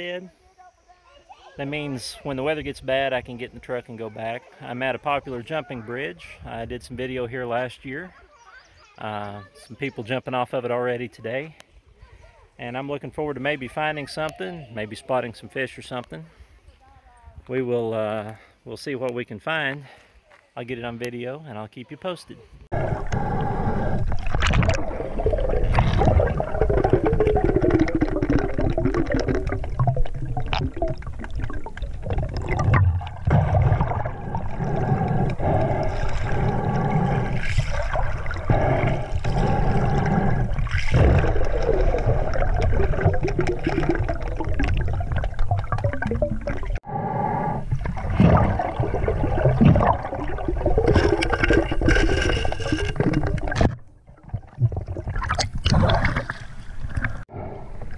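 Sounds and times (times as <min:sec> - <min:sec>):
underwater river current rushing: 0:22.7 - 0:46.9, 0:47.5 - 0:57.9
underwater knocks: 0:24.2 - 0:34.5.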